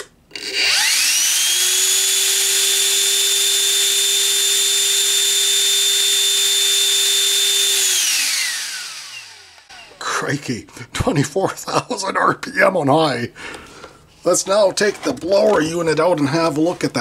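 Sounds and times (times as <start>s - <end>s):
blower motor whine: 0.0s - 10.1s.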